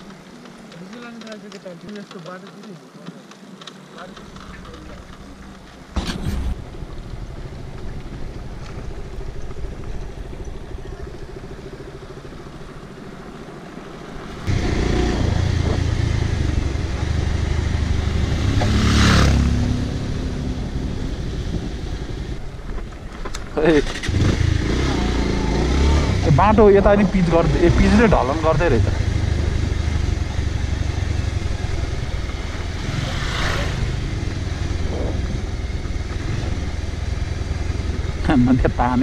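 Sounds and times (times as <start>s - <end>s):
motorcycle engine running: 0.0s - 39.0s
wind rushing over microphone: 14.5s - 22.7s, 28.8s - 37.0s.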